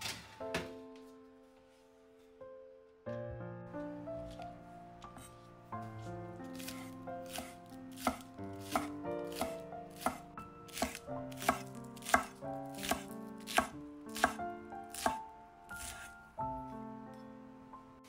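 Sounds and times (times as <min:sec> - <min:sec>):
knife chopping on wooden board: 0:06.5 - 0:16.1.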